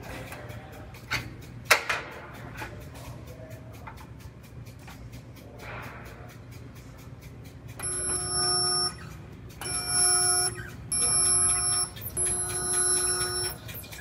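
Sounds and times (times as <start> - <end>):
spot welder buzzing: 7.8 - 13.6.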